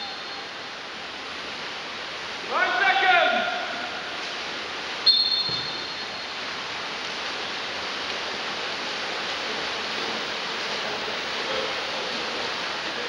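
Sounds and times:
swimmers splashing water: 0:00.0 - 0:13.0
referee's whistle blast: 0:05.1 - 0:06.2.

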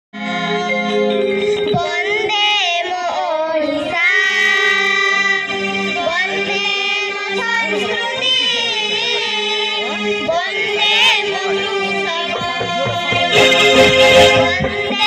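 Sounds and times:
held low accompaniment notes: 0:12.0 - 0:15.0.

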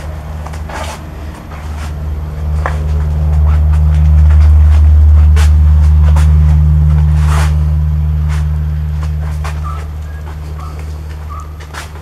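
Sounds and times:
vehicle engine hum: 0:00.0 - 0:12.0.

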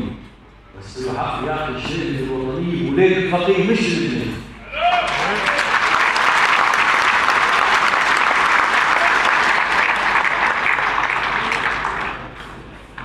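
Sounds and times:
audience applauding: 0:04.8 - 0:12.6.

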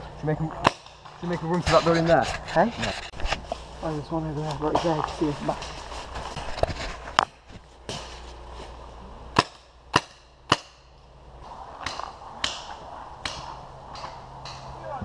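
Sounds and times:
paintball marker shots: 0:09.4 - 0:10.9, 0:11.8 - 0:14.7.

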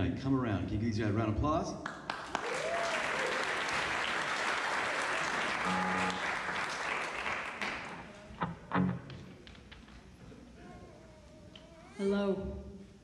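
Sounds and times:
audience applauding: 0:01.9 - 0:08.3.

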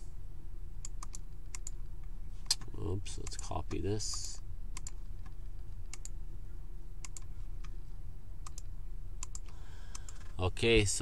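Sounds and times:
low steady hum: 0:00.0 - 0:11.0
computer keys clicking: 0:00.8 - 0:06.2, 0:07.0 - 0:07.7, 0:08.4 - 0:10.3.

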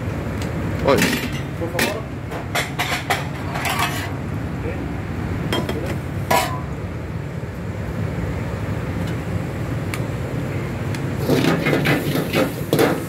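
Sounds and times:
gas burners roaring: 0:00.0 - 0:13.0
utensils clattering against wok: 0:00.8 - 0:04.2, 0:05.5 - 0:06.8, 0:11.2 - 0:13.0.

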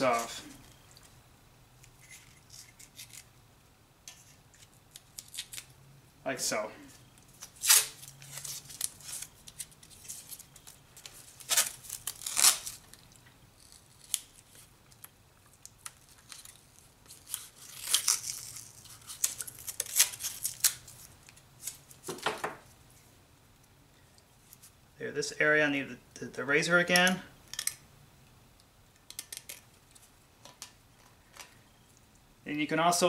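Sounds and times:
tape crinkling: 0:01.8 - 0:03.4, 0:04.1 - 0:05.8, 0:07.0 - 0:22.3
masking tape ripping off roll: 0:07.4 - 0:10.5, 0:11.3 - 0:14.7, 0:15.7 - 0:21.8.

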